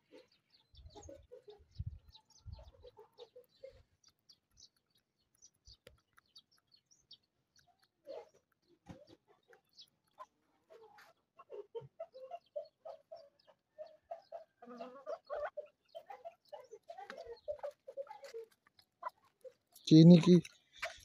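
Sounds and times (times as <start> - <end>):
hens clucking: 7.6 - 21.0.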